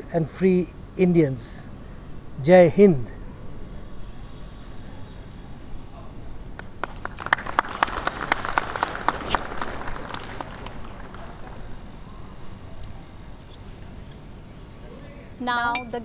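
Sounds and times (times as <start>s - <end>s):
people clapping: 6.5s - 12.0s.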